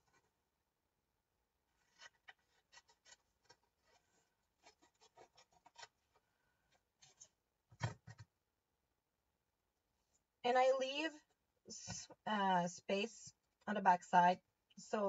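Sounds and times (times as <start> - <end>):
scissors snipping paper: 4.6 - 6.0.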